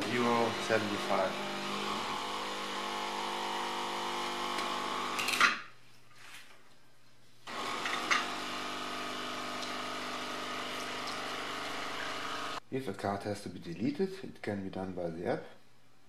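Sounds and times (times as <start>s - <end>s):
coffee machine pump running: 0.0s - 5.2s, 7.5s - 12.6s
coffee grinder motor: 0.0s - 5.3s, 7.5s - 12.6s.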